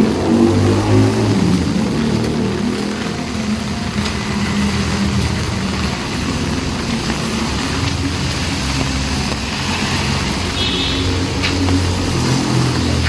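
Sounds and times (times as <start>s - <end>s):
heavy rain on wet pavement: 0.0s - 13.0s
vehicle engine humming: 0.0s - 13.0s.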